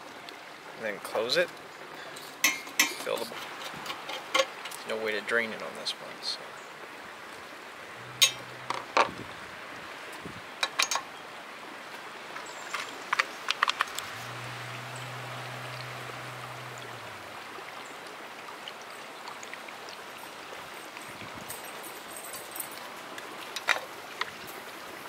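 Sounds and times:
liquid trickling through funnel: 0:12.5 - 0:21.8.

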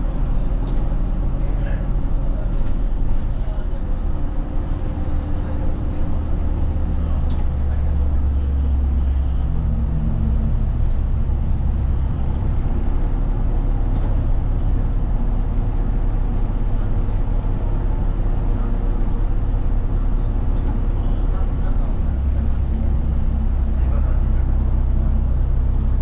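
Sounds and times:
bus engine drone: 0:00.0 - 0:26.0
road and tyre noise: 0:00.0 - 0:26.0.

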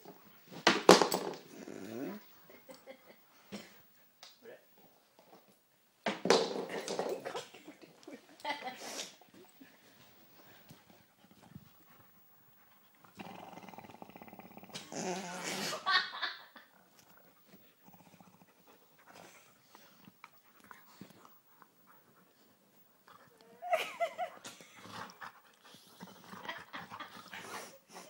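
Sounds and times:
dog growling and snarling: 0:01.3 - 0:02.3, 0:12.9 - 0:15.9, 0:16.6 - 0:20.2, 0:24.6 - 0:27.7.

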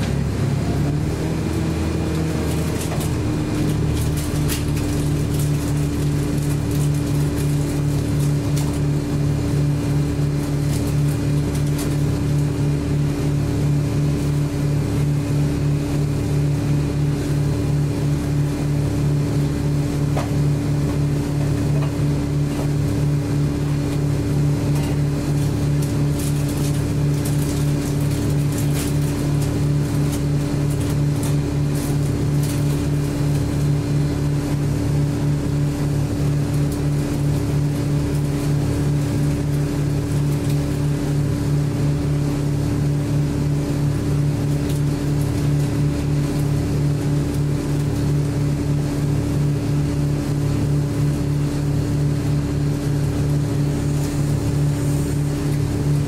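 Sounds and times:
bus engine humming: 0:00.0 - 0:34.8.

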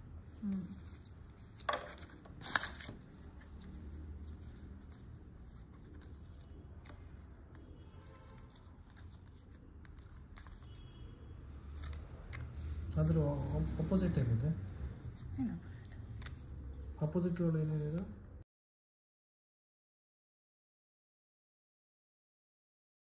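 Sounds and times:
playing cards swishing: 0:00.4 - 0:07.1
cards rustling: 0:00.4 - 0:10.8, 0:11.6 - 0:13.9.

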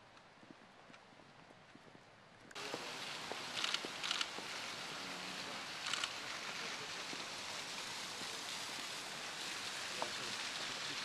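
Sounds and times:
fountain water running: 0:02.6 - 0:11.0.

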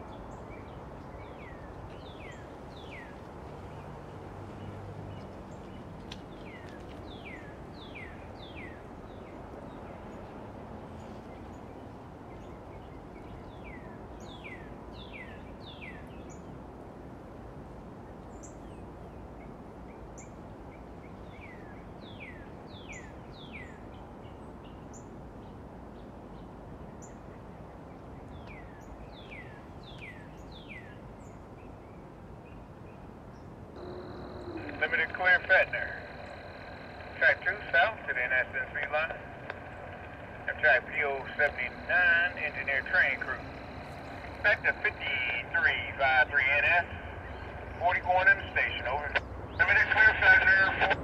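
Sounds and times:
low background rumble: 0:33.8 - 0:51.0.

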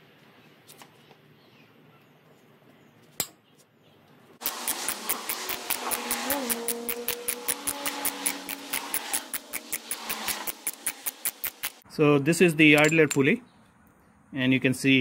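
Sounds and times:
hand tool clicking: 0:04.4 - 0:11.8, 0:12.8 - 0:13.2.

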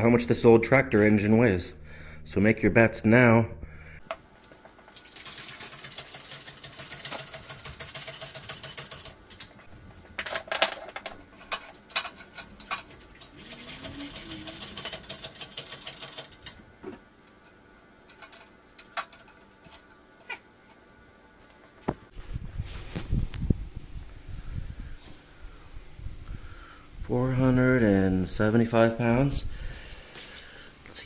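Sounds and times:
ratcheting hoist clicking: 0:05.0 - 0:09.5, 0:12.7 - 0:16.6.

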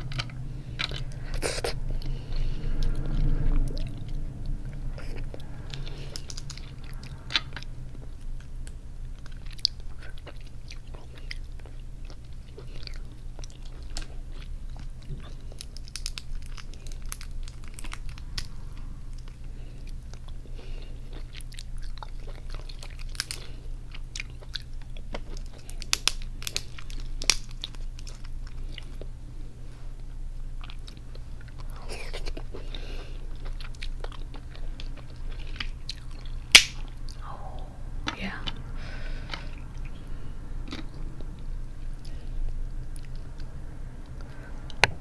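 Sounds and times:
chewing: 0:00.0 - 0:29.2, 0:29.9 - 0:45.0
crab shell cracking: 0:15.4 - 0:18.6, 0:22.7 - 0:23.6, 0:25.1 - 0:28.4, 0:35.6 - 0:37.2.

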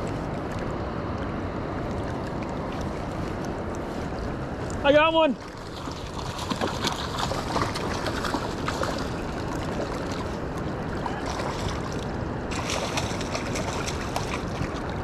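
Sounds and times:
river water rushing: 0:00.0 - 0:15.0
fish splashing at surface: 0:05.6 - 0:10.3, 0:11.0 - 0:15.0.

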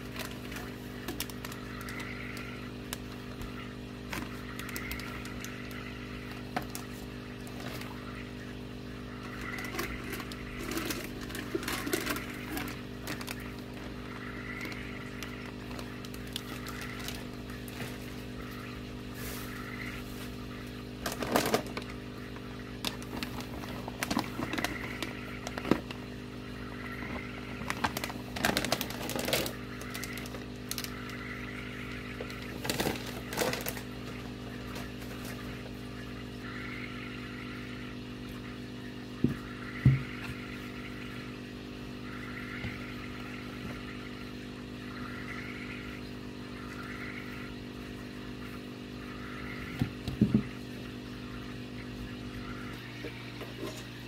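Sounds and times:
plastic bags crinkling: 0:00.0 - 0:03.1, 0:09.4 - 0:18.1, 0:21.0 - 0:22.0, 0:22.8 - 0:26.1, 0:27.6 - 0:30.9, 0:32.2 - 0:35.5
low mechanical hum: 0:00.0 - 0:54.0.

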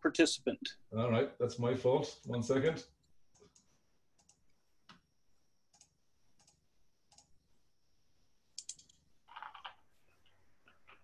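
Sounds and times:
computer mouse clicks: 0:03.3 - 0:05.0, 0:05.7 - 0:07.4, 0:08.6 - 0:09.8.

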